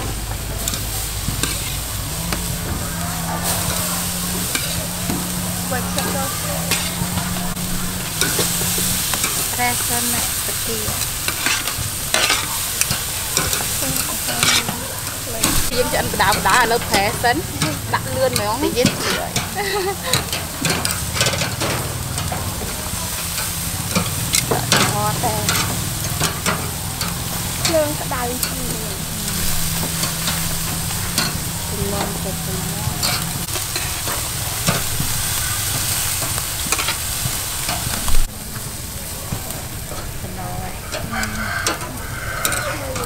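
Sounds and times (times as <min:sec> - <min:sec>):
low hum: 0:00.0 - 0:42.1
meat sizzling on a grill: 0:00.0 - 0:43.0
metal tongs clicking: 0:00.6 - 0:01.8, 0:08.1 - 0:15.6, 0:16.3 - 0:22.4, 0:23.3 - 0:27.7.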